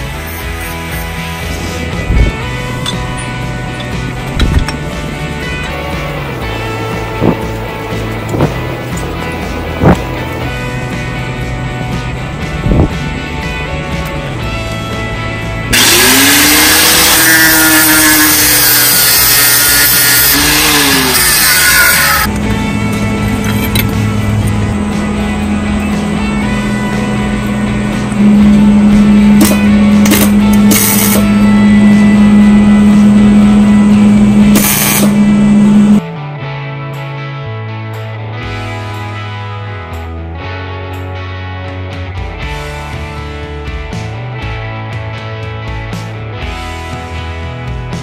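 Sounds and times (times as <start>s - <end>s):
angle grinder grinding metal: 0.0s - 10.4s, 15.5s - 36.0s
music with held notes: 0.0s - 48.0s.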